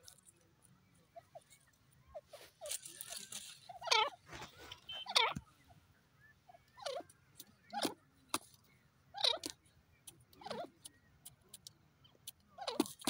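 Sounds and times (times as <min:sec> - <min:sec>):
francolin calling: 0:01.1 - 0:08.0.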